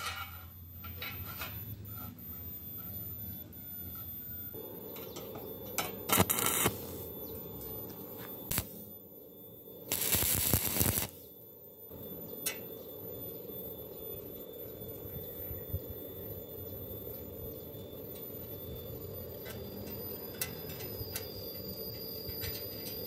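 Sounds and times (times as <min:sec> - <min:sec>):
welding arc crackling: 0:04.6 - 0:09.0, 0:09.8 - 0:11.3.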